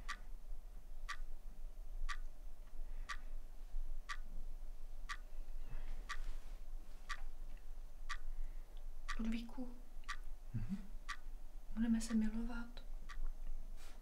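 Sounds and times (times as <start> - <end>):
clock ticking: 0.0 - 5.3, 6.0 - 6.3, 7.1 - 13.6
faint low hum: 0.0 - 14.0
soft rustle of movement: 4.7 - 7.7, 13.4 - 14.0.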